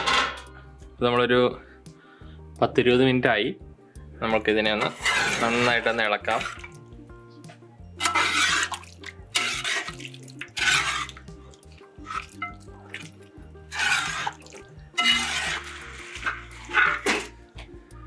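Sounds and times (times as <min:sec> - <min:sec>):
soft background music: 0:00.0 - 0:18.0
wooden spoon stirring thick curry: 0:04.8 - 0:06.8, 0:08.0 - 0:17.4.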